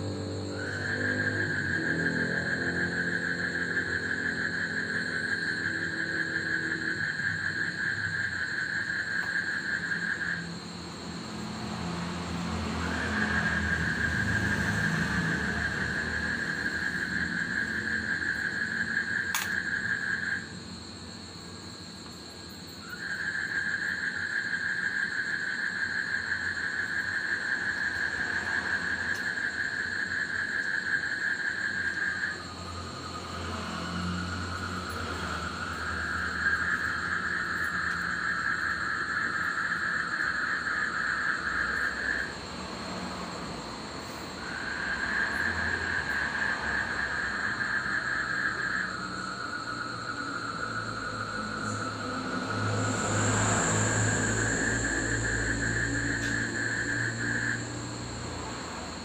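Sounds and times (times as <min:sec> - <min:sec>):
frogs trilling: 0:00.0 - 0:59.0
vehicle passing faintly: 0:09.9 - 0:21.5, 0:31.6 - 0:59.0
sharp click: 0:19.4 - 0:19.6.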